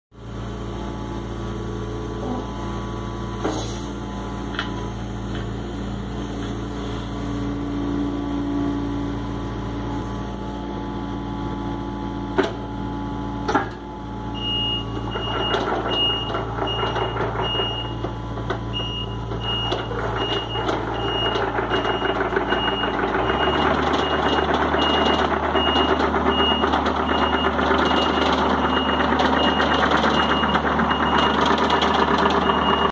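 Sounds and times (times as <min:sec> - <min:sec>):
diesel engine running: 0:00.1 - 0:32.9
motion alarm beeping: 0:14.4 - 0:18.0, 0:18.7 - 0:31.4.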